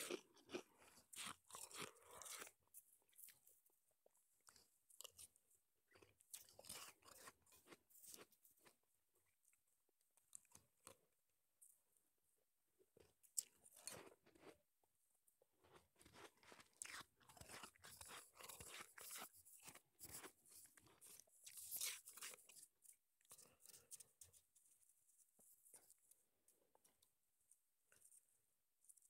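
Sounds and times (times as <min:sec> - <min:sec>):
chewing crunchy ice: 0:00.0 - 0:03.4, 0:05.9 - 0:08.8, 0:15.6 - 0:23.9.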